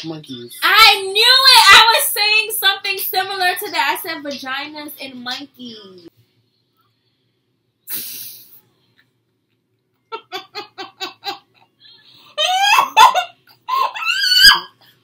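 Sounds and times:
woman laughing: 0:10.1 - 0:14.6.

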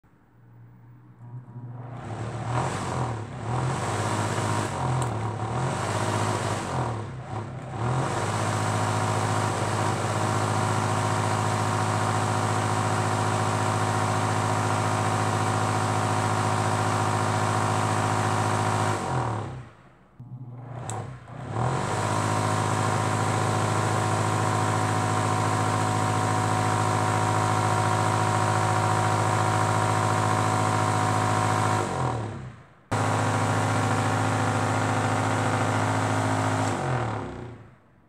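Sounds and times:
microwave cooling fan humming: 0:00.4 - 0:08.3.

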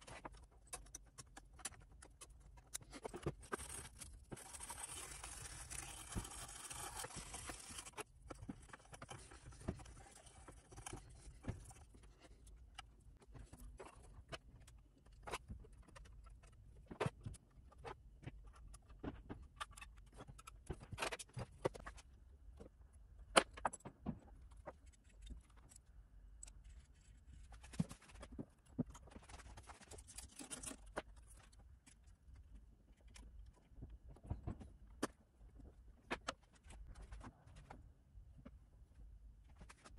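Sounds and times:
small tools clicking and tapping: 0:00.0 - 0:22.0.

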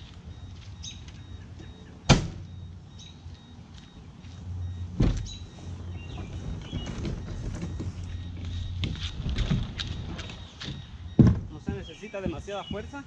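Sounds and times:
car trunk lid slamming: 0:02.1 - 0:02.5, 0:04.9 - 0:05.4, 0:11.1 - 0:11.8.

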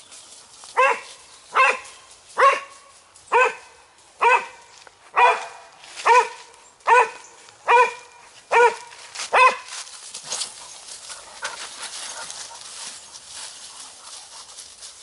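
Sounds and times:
rustling through dry leaves: 0:00.0 - 0:15.0
dog barking: 0:00.8 - 0:02.7, 0:03.3 - 0:09.7.

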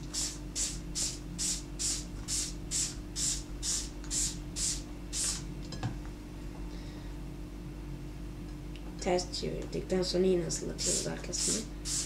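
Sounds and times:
spray bottle hissing sprays: 0:00.0 - 0:05.4, 0:10.8 - 0:12.0.

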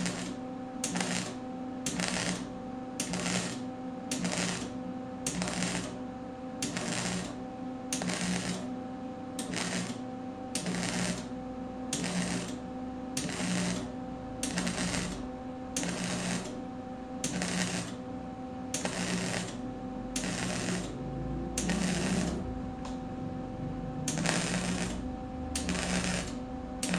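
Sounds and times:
welding arc crackling: 0:00.0 - 0:06.0, 0:06.6 - 0:08.7, 0:09.4 - 0:10.0, 0:10.6 - 0:11.3, 0:11.9 - 0:12.6, 0:13.2 - 0:16.6, 0:17.2 - 0:18.0, 0:18.7 - 0:23.0, 0:24.0 - 0:26.9
welder humming: 0:00.0 - 0:26.9.

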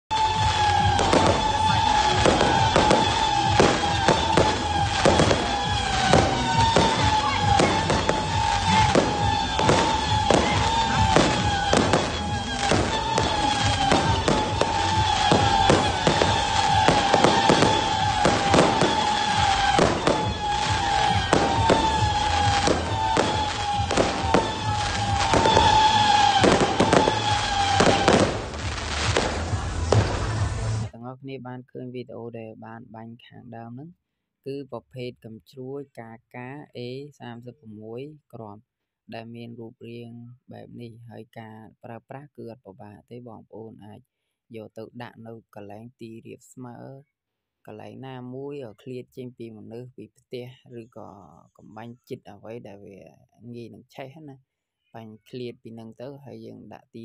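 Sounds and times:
falling high whistle: 0:00.1 - 0:30.2
firework shots: 0:00.1 - 0:30.9.

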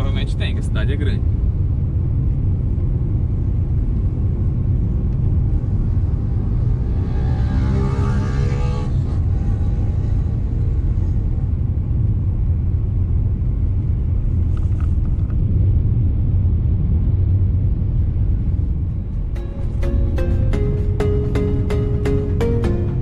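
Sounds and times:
car engine and tyres rumbling: 0:00.0 - 0:23.0.

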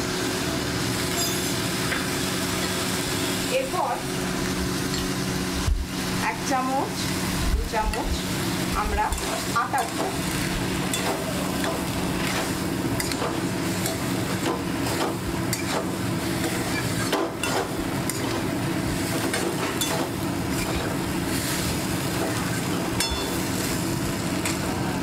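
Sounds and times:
food sizzling in oil: 0:00.0 - 0:25.0
spatula scraping a wok: 0:07.0 - 0:23.8
spatula clinking against pan: 0:23.0 - 0:23.4.

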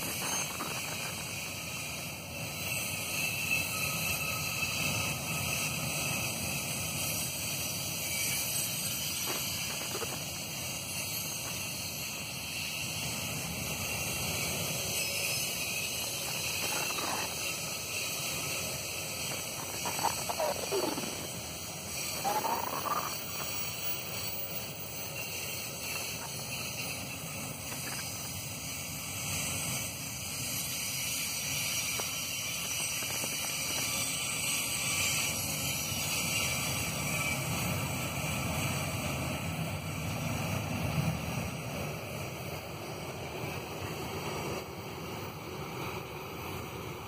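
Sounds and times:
freight train wagons rumbling past: 0:00.0 - 0:47.0.

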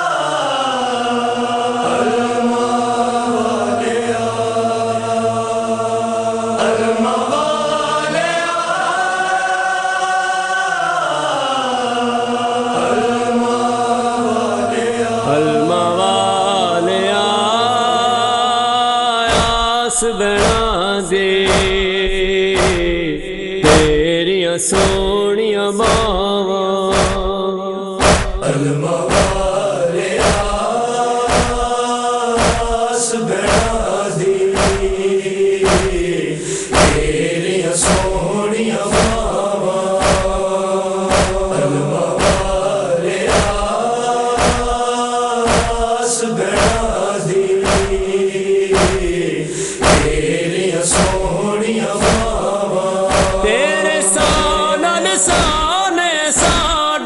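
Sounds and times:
men chanting a lament: 0:00.0 - 0:57.0
chest-beating thumps: 0:19.3 - 0:24.1, 0:24.7 - 0:25.2, 0:25.8 - 0:26.3, 0:26.9 - 0:27.4, 0:28.0 - 0:28.5, 0:29.1 - 0:29.6, 0:30.2 - 0:30.7, 0:31.3 - 0:31.8, 0:32.4 - 0:32.9, 0:33.5 - 0:34.0, 0:34.6 - 0:37.2, 0:37.8 - 0:38.3, 0:38.9 - 0:39.4, 0:40.0 - 0:41.6, 0:42.2 - 0:42.7, 0:43.3 - 0:43.7, 0:44.4 - 0:44.9, 0:45.5 - 0:46.0, 0:46.6 - 0:47.0, 0:47.6 - 0:49.2, 0:49.8 - 0:51.3, 0:52.0 - 0:52.4, 0:53.1 - 0:53.6, 0:54.2 - 0:54.7, 0:55.3 - 0:55.7, 0:56.4 - 0:56.8.

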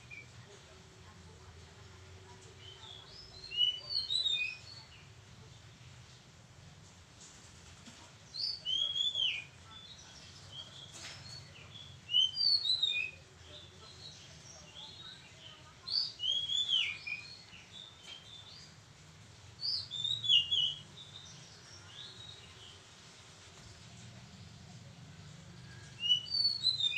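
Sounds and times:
bird singing whistled notes: 0:03.0 - 0:04.9, 0:08.4 - 0:09.5, 0:11.2 - 0:13.2, 0:15.9 - 0:18.5, 0:19.6 - 0:22.7, 0:25.7 - 0:26.9.

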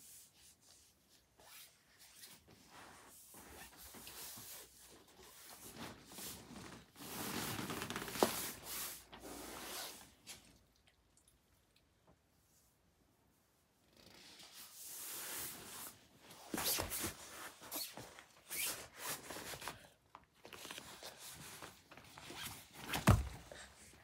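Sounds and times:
tent fabric rustling: 0:01.4 - 0:10.0.

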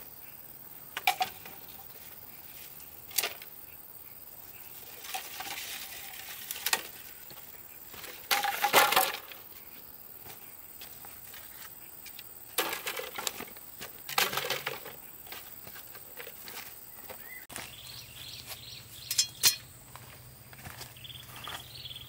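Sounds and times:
rustling: 0:04.7 - 0:20.9
sharp knocks and clinks: 0:19.0 - 0:19.7.

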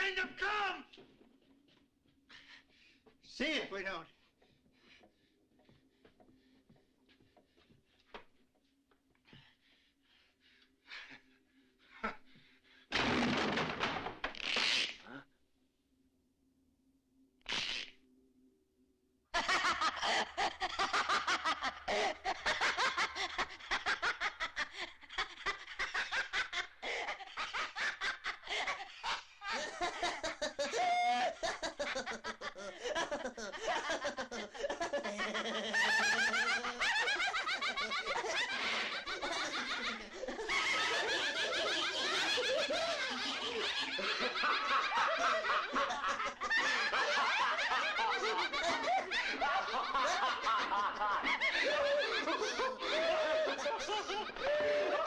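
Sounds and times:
man laughing hysterically: 0:19.4 - 0:55.0
people laughing wildly: 0:19.4 - 0:55.0.

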